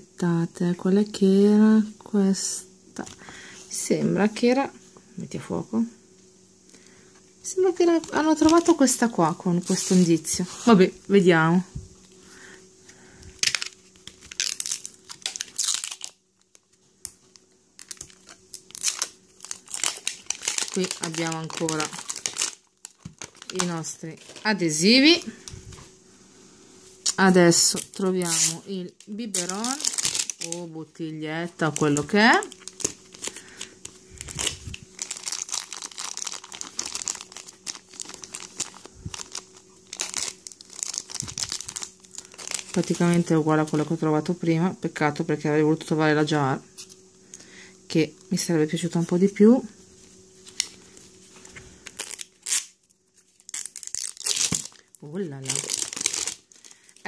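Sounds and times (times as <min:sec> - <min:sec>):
plastic wrapping crinkling: 0:07.8 - 0:10.8, 0:13.3 - 0:25.9, 0:27.0 - 0:44.0, 0:50.2 - 0:57.0.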